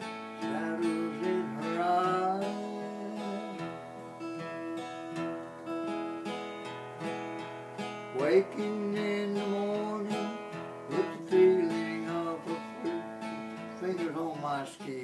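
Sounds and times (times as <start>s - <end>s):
person singing: 0.0s - 5.1s, 8.1s - 15.0s
acoustic guitar: 0.0s - 15.0s.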